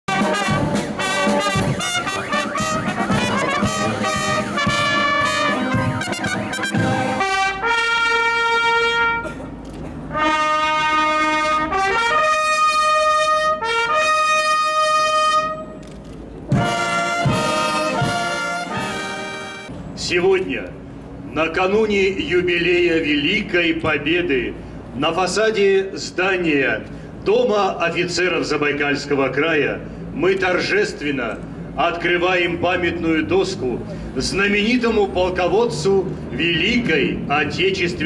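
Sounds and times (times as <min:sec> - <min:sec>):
brass band playing a march: 0:00.0 - 0:09.3, 0:10.1 - 0:15.7, 0:16.5 - 0:19.7
brass fanfare chords: 0:00.1 - 0:09.3, 0:10.1 - 0:15.7, 0:16.5 - 0:19.7.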